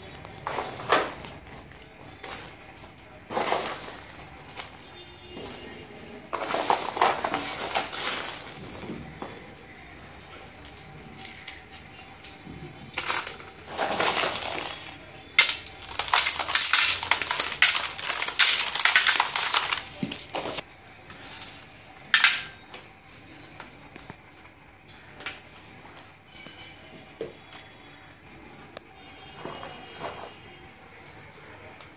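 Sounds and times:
slate pencils clattering into metal tray: 0.0 - 1.4, 2.2 - 9.8, 10.7 - 20.6, 22.1 - 22.6.

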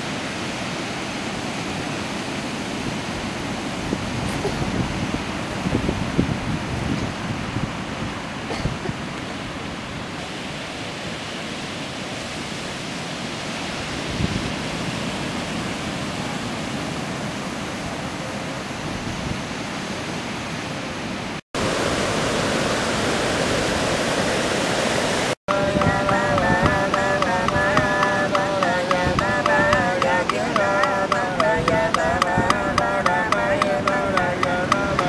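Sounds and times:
surf breaking on beach: 21.6 - 35.0.

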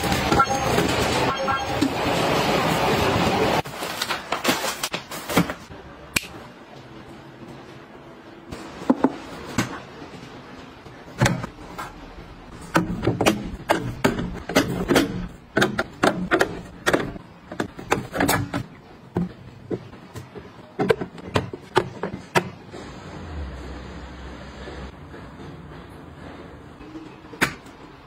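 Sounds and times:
cans and bottles clacking on shelves: 11.1 - 22.7.

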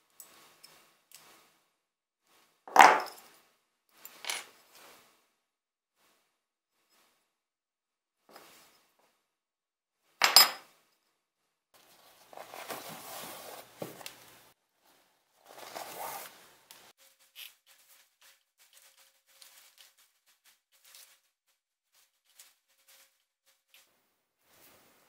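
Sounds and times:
shoelaces rustling: 11.8 - 14.6, 15.4 - 24.8.

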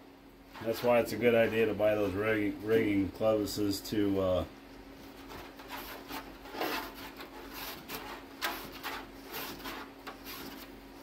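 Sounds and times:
wire scraping inside fuselage: 5.1 - 10.8.

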